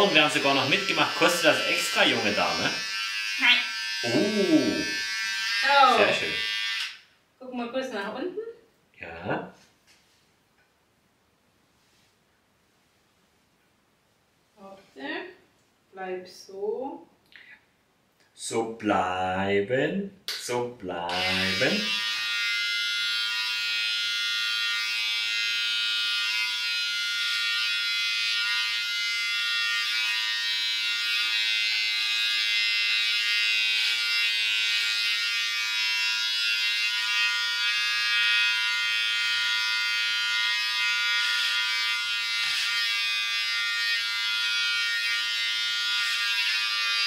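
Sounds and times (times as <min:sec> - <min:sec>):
electric hair clipper buzzing: 0:00.0 - 0:07.0, 0:21.1 - 0:47.0.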